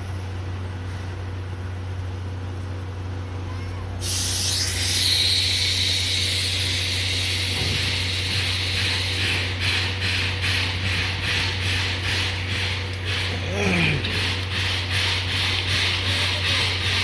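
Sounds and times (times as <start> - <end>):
steady low hum: 0.0 - 17.0
steam locomotive hissing: 4.0 - 17.0.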